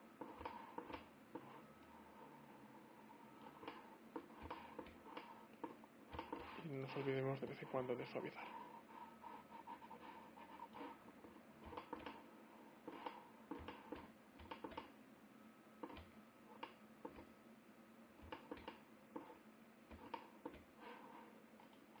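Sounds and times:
faint steady hum: 0:00.0 - 0:22.0
mouse and keyboard clicking: 0:11.6 - 0:12.2, 0:12.9 - 0:14.9.

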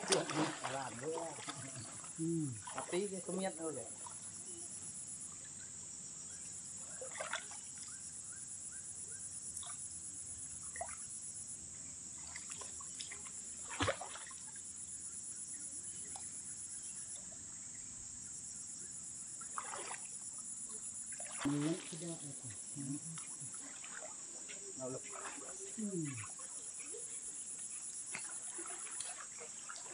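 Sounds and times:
water splashes: 0:00.0 - 0:04.4, 0:06.8 - 0:08.0, 0:10.6 - 0:11.1, 0:12.2 - 0:14.7, 0:19.4 - 0:29.9
pulsing insect chorus: 0:00.0 - 0:29.9.

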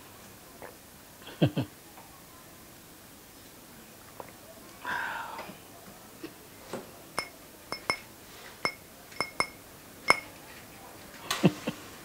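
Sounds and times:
glass tapped lightly: 0:07.2 - 0:10.3.

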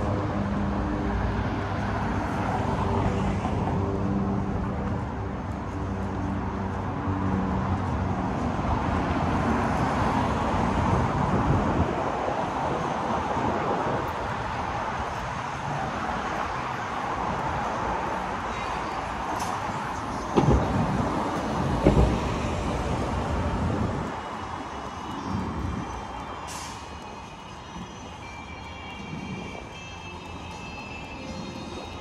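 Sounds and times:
city street traffic: 0:00.0 - 0:32.0.

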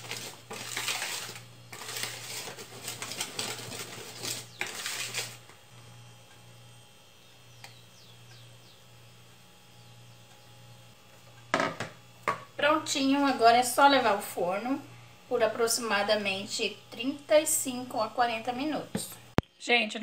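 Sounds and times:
spoon scraping batter in bowl: 0:00.0 - 0:05.6.

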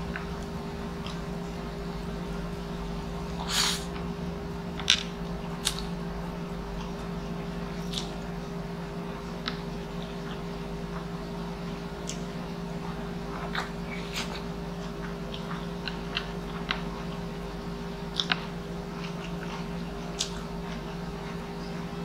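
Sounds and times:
low hum: 0:00.0 - 0:22.0
chewing noodles: 0:12.0 - 0:22.0.

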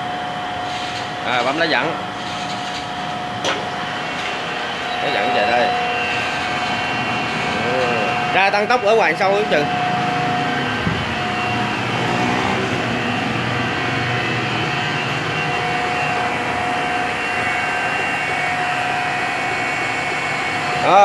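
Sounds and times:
grinder machine hum: 0:00.0 - 0:21.0
high whine: 0:00.0 - 0:21.0.

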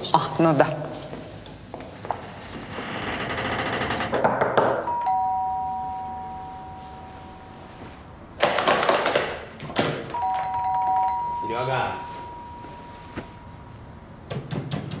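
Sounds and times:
two-tone doorbell chime: 0:04.8 - 0:08.0, 0:10.1 - 0:14.0.

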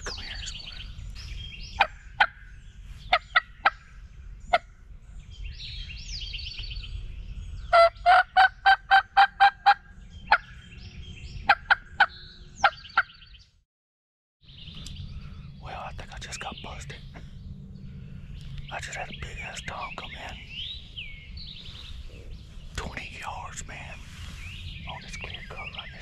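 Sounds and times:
turkey clucking: 0:01.8 - 0:02.4, 0:03.1 - 0:03.8, 0:07.7 - 0:10.5, 0:11.5 - 0:13.1
turkey yelping: 0:01.8 - 0:02.4, 0:03.1 - 0:03.8, 0:07.7 - 0:10.5, 0:11.5 - 0:13.1.

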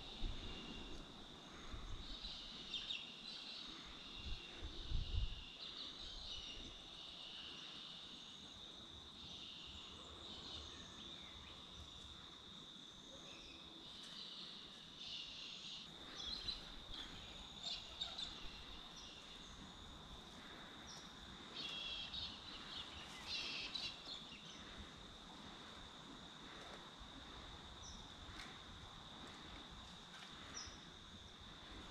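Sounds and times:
insects chirring: 0:00.0 - 0:31.9
bird chirps: 0:21.6 - 0:24.6.

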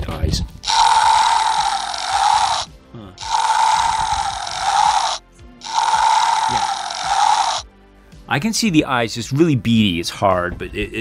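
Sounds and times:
electronic toy roar: 0:00.6 - 0:07.7.

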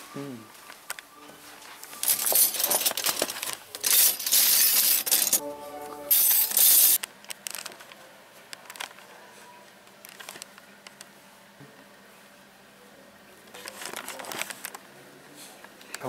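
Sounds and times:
metal cutlery clinking in a basket: 0:01.8 - 0:05.4, 0:06.1 - 0:07.0
brief pitched tone: 0:05.4 - 0:07.0.

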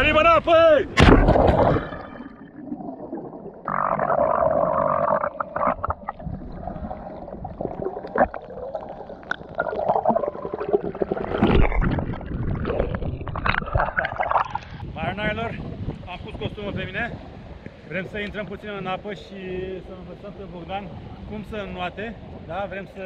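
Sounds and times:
underwater bubbling: 0:00.9 - 0:15.0
splash of person jumping into sea: 0:01.0 - 0:02.2.

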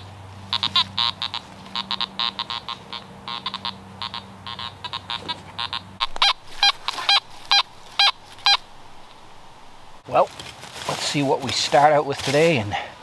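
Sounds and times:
metal detector beeping: 0:03.3 - 0:10.0.

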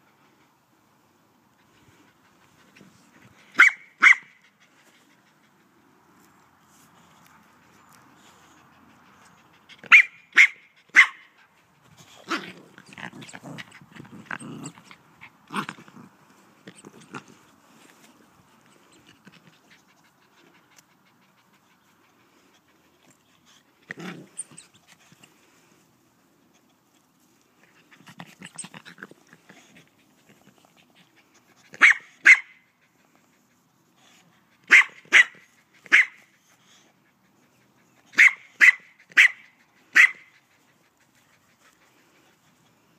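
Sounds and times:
dog barking: 0:03.6 - 0:04.3, 0:09.9 - 0:11.3, 0:31.8 - 0:32.5, 0:34.7 - 0:36.2, 0:38.2 - 0:39.4, 0:40.0 - 0:40.3
dog making rough low sounds: 0:12.0 - 0:17.6.

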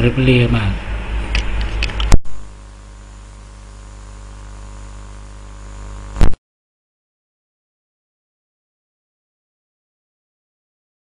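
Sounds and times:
electrical hum with hiss: 0:00.0 - 0:06.4.

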